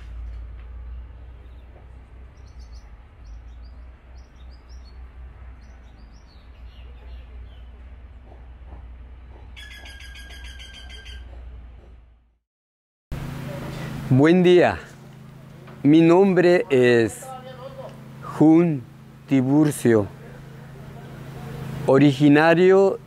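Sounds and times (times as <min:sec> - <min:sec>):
birds chirping: 0:00.0 - 0:12.0
bird trilling rapidly: 0:09.6 - 0:11.4.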